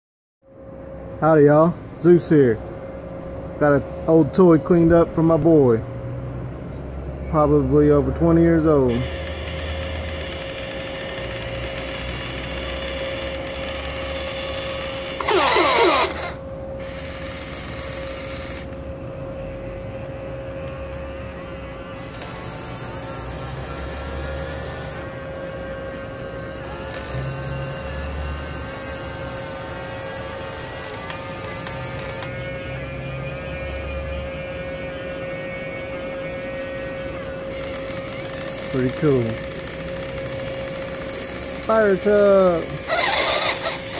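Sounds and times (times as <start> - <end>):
toy electric motor whirring: 8.7 - 18.8, 22.0 - 25.2, 26.6 - 32.6, 35.9 - 43.9
falling electronic tones: 9.0 - 16.4.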